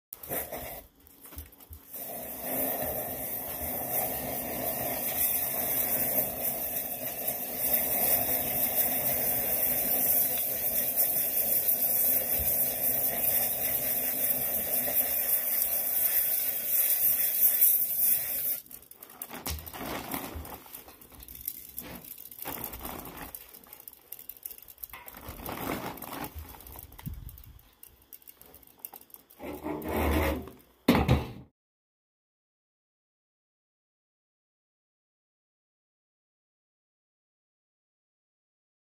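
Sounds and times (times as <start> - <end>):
compressed air hissing: 1.9 - 18.6
crackles and rustles: 18.6 - 29.6.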